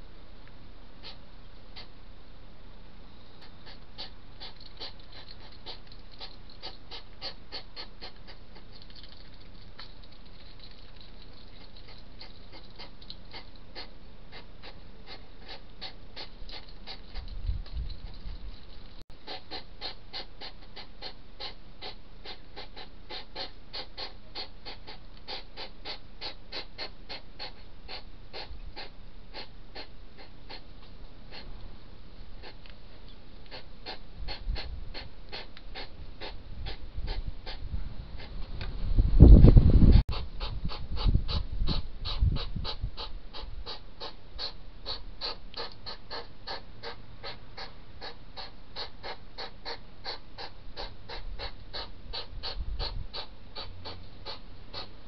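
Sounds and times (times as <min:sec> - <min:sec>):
hedgehogs chewing food: 0:03.7 - 0:27.2
wind rumble on microphone: 0:17.1 - 0:19.0, 0:34.1 - 0:43.8, 0:51.2 - 0:53.2.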